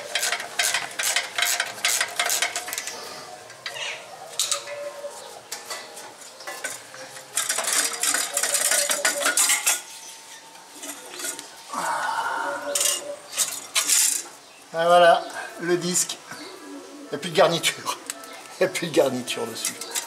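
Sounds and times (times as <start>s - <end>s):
wrench clicking and clinking on bolts: 0.1s - 2.9s.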